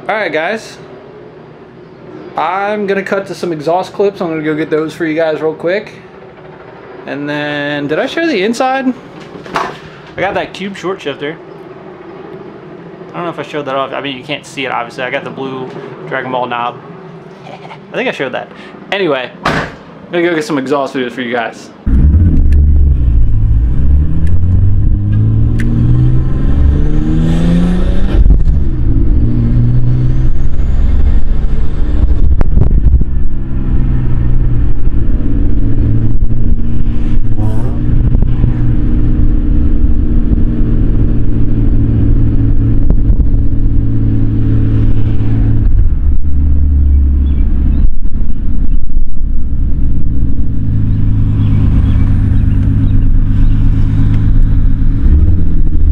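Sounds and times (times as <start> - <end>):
car engine accelerating: 21.8 - 55.9.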